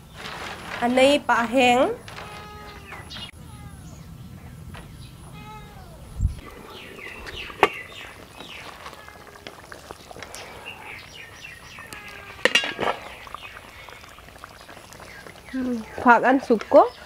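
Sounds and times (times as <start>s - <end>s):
birds chirping: 0.9s - 17.0s
metal lid clattering: 12.4s - 13.0s.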